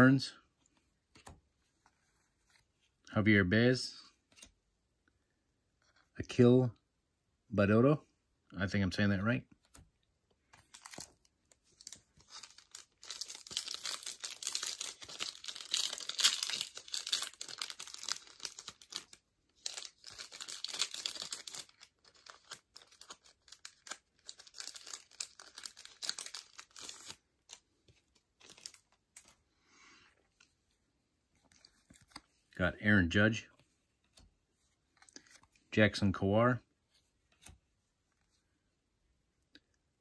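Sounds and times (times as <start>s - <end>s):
foil wrapper tearing and crinkling: 10.7s - 27.2s.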